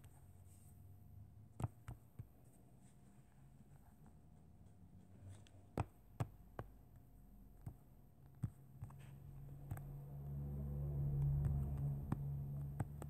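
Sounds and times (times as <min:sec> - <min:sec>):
low hum: 0:09.1 - 0:13.0.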